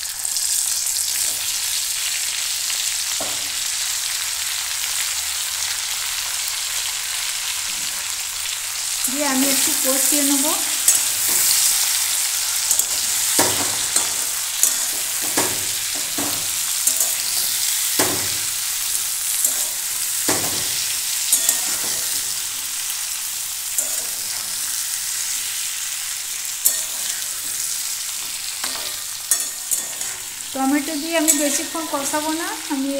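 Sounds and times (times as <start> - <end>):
vegetables sizzling in hot oil: 0.0 - 32.9
metal spatula scraping a pan: 9.5 - 22.5, 23.7 - 32.4.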